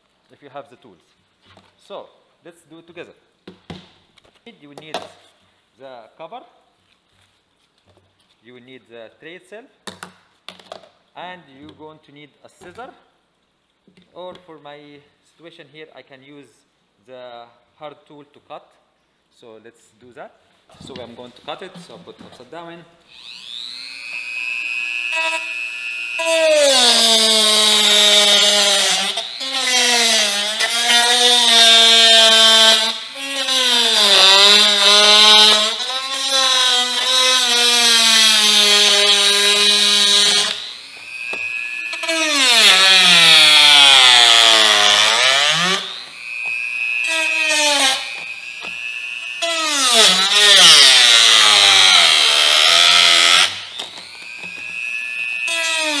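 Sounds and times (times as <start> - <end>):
rotary tool motor whine: 23.1 - 56.0.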